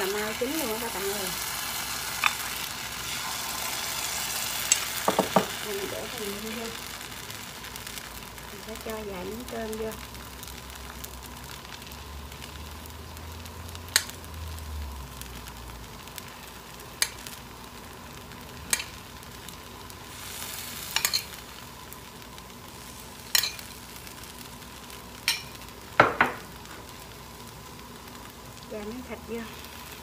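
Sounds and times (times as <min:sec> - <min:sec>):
batter sizzling in pan: 0:00.0 - 0:30.0
metal spoon clinking: 0:21.0 - 0:21.3.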